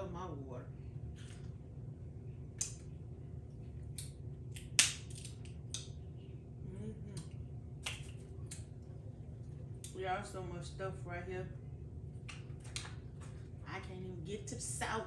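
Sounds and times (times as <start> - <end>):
crunching food: 3.5 - 6.0.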